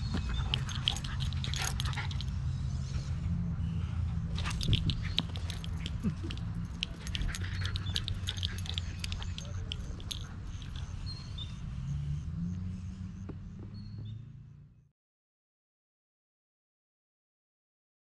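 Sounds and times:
dog chewing tennis ball: 0.0s - 2.2s, 4.3s - 10.9s.

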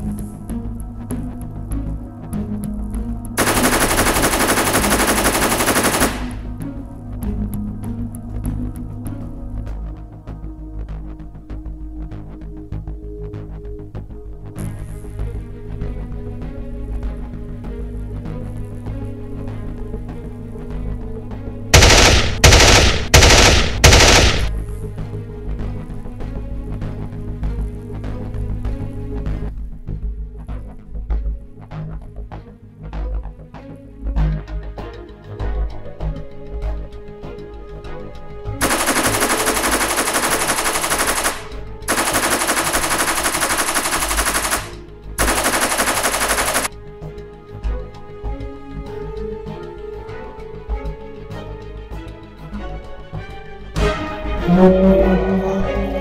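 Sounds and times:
background music: 0.0s - 56.0s
machine gun bursts: 3.4s - 6.5s, 21.8s - 24.5s, 38.6s - 46.7s.

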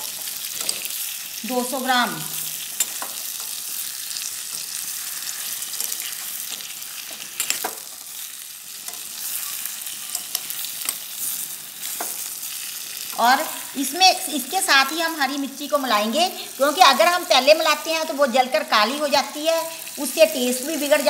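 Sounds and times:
vegetables sizzling in a pan: 0.0s - 21.0s
metal spoon scraping a pan: 2.6s - 12.3s.

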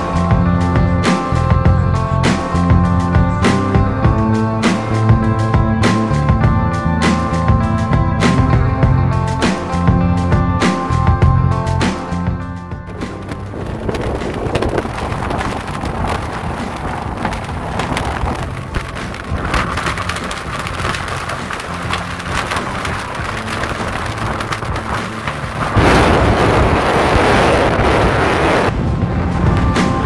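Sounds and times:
strong wind on microphone: 12.8s - 30.0s.

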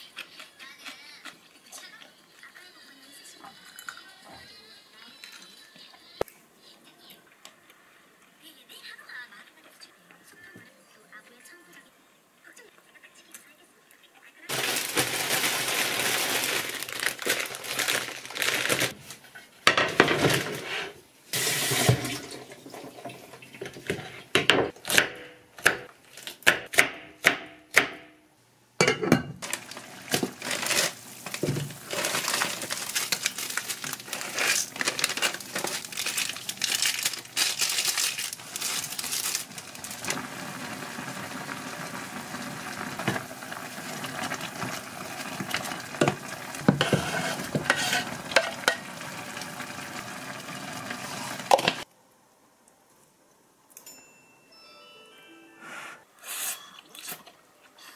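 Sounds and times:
plastic packet crinkling: 14.5s - 19.2s, 29.4s - 40.6s
utensil scraping pot: 20.0s - 24.4s, 29.4s - 35.9s, 45.4s - 49.0s
boiling water bubbling: 21.3s - 23.9s, 39.4s - 51.9s.

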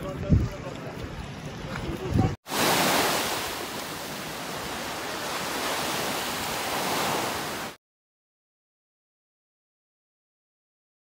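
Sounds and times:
rushing water: 0.0s - 7.8s.

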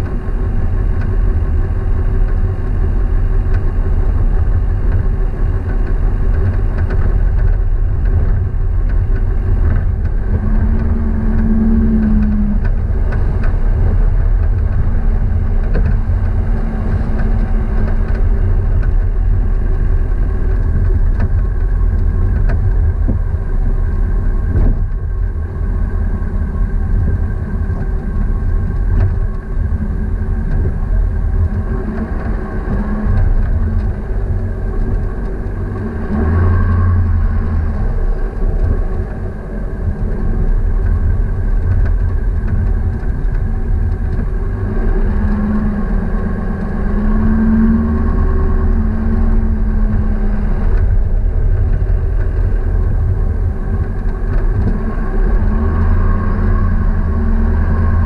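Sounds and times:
vehicle engine running: 0.0s - 58.0s.

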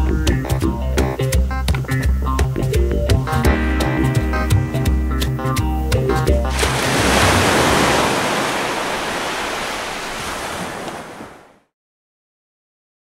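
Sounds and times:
sea waves breaking: 6.5s - 11.7s
wind: 6.5s - 11.7s.

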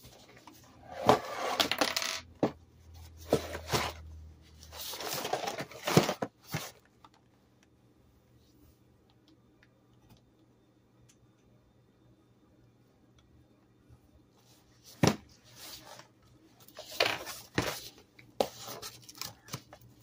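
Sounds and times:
cardboard box rustling and scraping: 0.9s - 1.8s, 3.2s - 4.0s, 4.7s - 6.8s.

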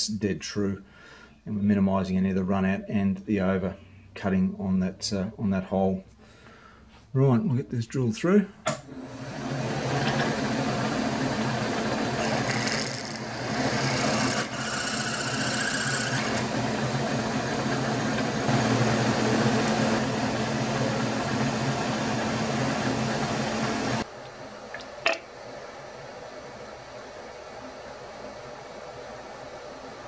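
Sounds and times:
milling machine drilling metal: 9.6s - 24.0s.

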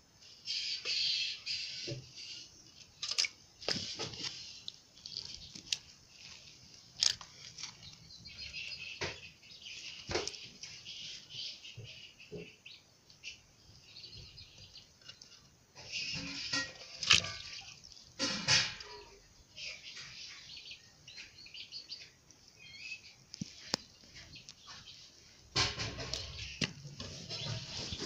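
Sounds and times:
water splashing in metal basin: 16.2s - 18.9s.

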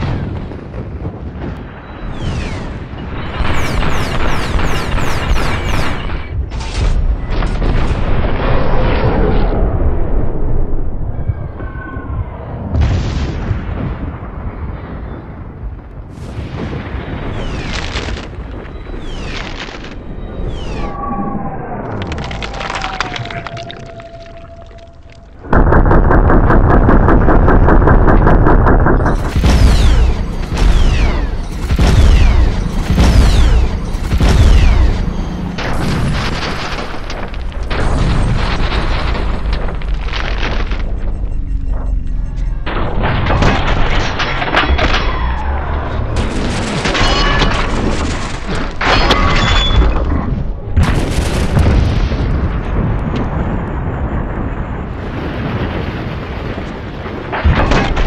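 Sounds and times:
heavy booms with falling whistle: 1.6s - 15.5s, 16.5s - 44.2s
minigun firing rapid rattle: 25.6s - 37.0s.

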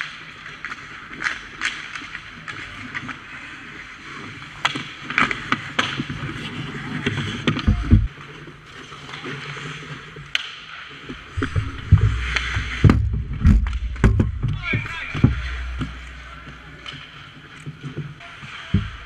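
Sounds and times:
skate blades scraping ice: 0.0s - 13.8s
stick and puck clacks: 0.0s - 19.0s
heavy thumps against net: 11.4s - 16.0s.

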